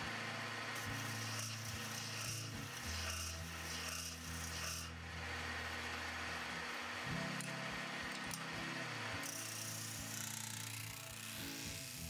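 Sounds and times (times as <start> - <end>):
lathe humming: 0.0 - 11.9
rasping friction on spinning metal: 0.2 - 5.0.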